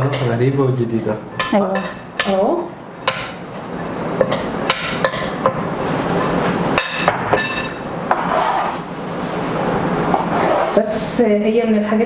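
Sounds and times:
utensils clinking against glass bowl: 4.2 - 5.6, 6.8 - 7.9.

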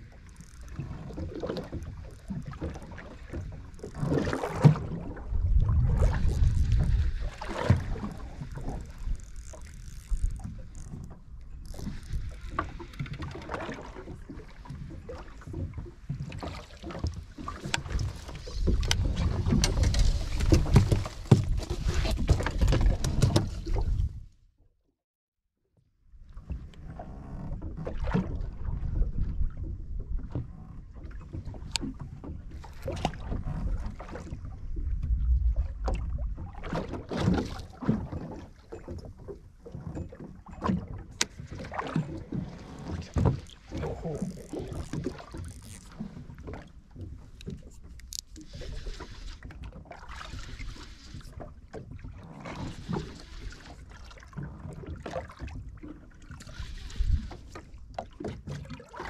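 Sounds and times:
wind rumble on microphone: 0.0 - 24.3, 26.2 - 58.0
water lapping against boat hull: 0.0 - 24.6, 26.0 - 59.0.

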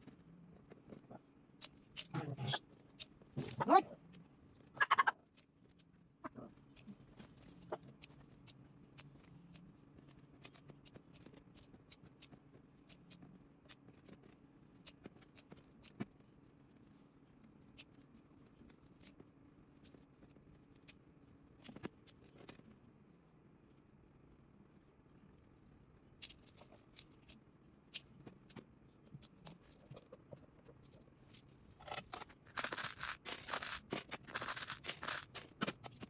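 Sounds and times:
plastic beads clicking: 32.5 - 36.0.

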